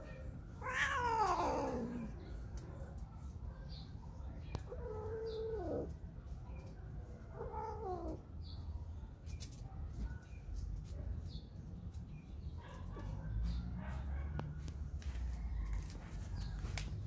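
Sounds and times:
cat yowling: 0:00.6 - 0:02.2, 0:04.7 - 0:05.9, 0:07.4 - 0:08.2.

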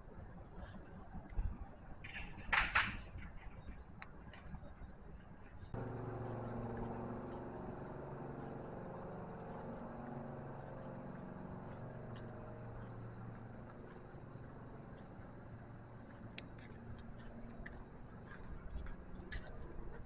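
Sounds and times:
engine-like mechanical drone: 0:05.6 - 0:20.0.

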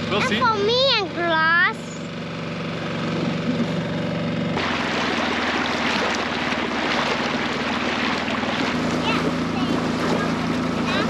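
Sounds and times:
outboard motor running: 0:00.0 - 0:11.0
water rushing and splashing: 0:04.6 - 0:11.0.

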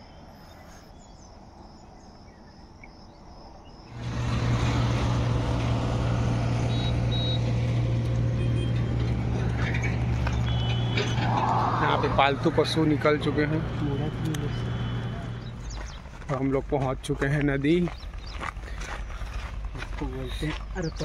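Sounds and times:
vehicle hum: 0:03.8 - 0:21.0
short high beeps: 0:06.7 - 0:07.5.

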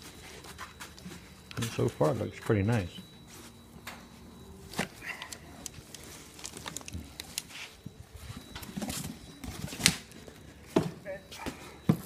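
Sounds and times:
plastic wrap crinkling: 0:04.7 - 0:10.3
cardboard rustling: 0:05.8 - 0:10.5.

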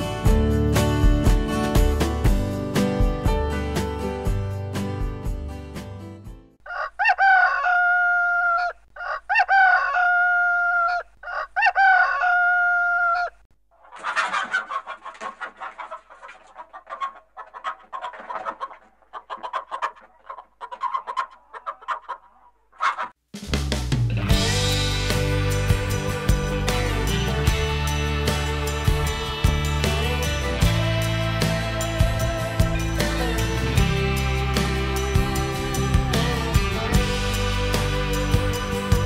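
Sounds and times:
rooster crowing: 0:06.6 - 0:13.4
hens clucking: 0:06.7 - 0:23.2.

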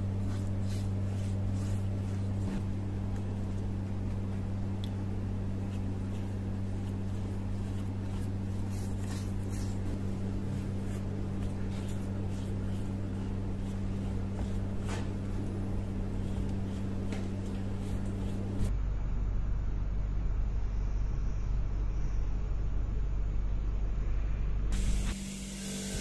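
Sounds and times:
wet paintbrush brushing: 0:00.0 - 0:18.7
steady low hum: 0:00.0 - 0:26.0.

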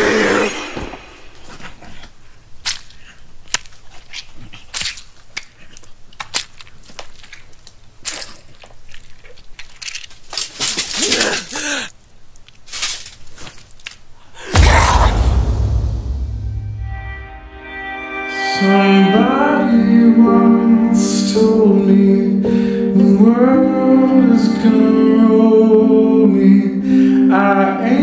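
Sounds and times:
sharp cracks and snaps: 0:02.6 - 0:14.2
strained vocal sound: 0:14.4 - 0:15.8.

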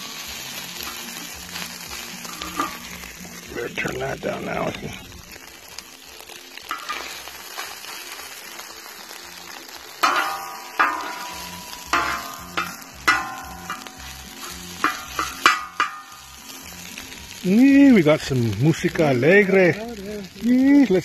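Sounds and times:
metal spatula scraping: 0:00.0 - 0:03.3, 0:06.7 - 0:08.0, 0:10.0 - 0:17.4
food sizzling: 0:00.0 - 0:21.0
spatula clanking on steel: 0:02.1 - 0:03.0, 0:06.7 - 0:07.2, 0:10.0 - 0:16.5.

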